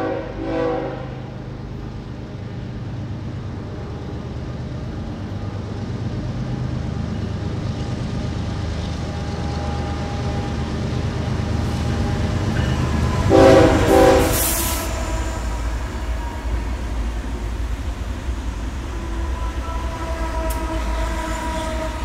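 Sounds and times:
train horn blasts: 0.0 - 1.5, 11.6 - 17.5, 18.8 - 22.0
train rumbling: 0.0 - 22.0.

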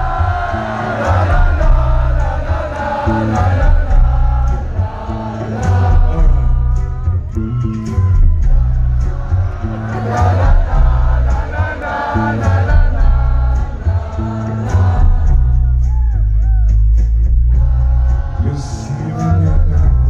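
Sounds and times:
man singing: 0.0 - 7.3, 17.6 - 20.0
live rock band playing: 0.0 - 20.0.

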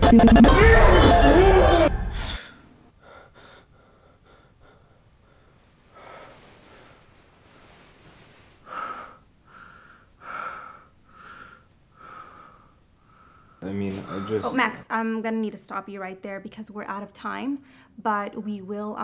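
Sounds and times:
man breathing hard: 2.1 - 7.0, 8.6 - 14.6.

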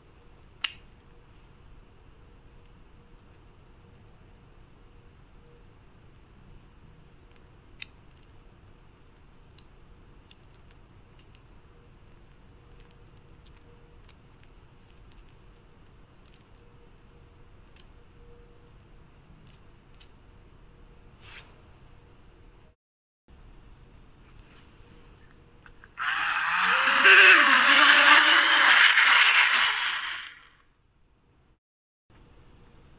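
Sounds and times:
plastic toy parts clicking: 9.4 - 11.5, 12.3 - 15.3, 16.2 - 16.6, 18.8 - 20.1.

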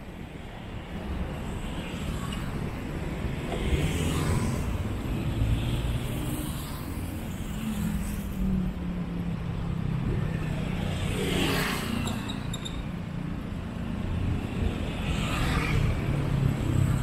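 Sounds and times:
traffic engines passing: 0.0 - 17.0.

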